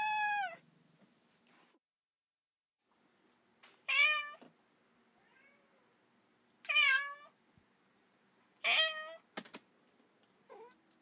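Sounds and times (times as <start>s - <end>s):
cat meowing: 0.0s - 0.6s, 5.2s - 5.9s.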